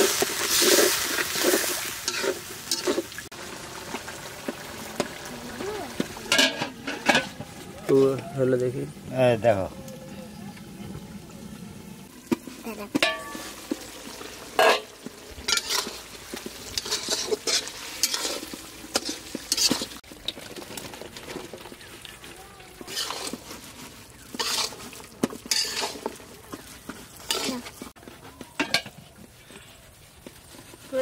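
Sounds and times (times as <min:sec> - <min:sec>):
frying sizzle: 0:00.0 - 0:31.0
spoon scraping food in pot: 0:00.5 - 0:03.0, 0:15.5 - 0:20.0, 0:22.8 - 0:31.0.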